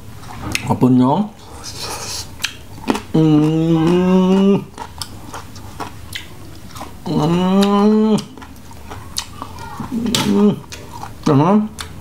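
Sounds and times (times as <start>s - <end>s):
wet mouth clicks of chewing: 2.4s - 12.0s
man's drawn-out vocal sound: 3.1s - 4.7s, 7.0s - 8.4s, 9.9s - 11.8s.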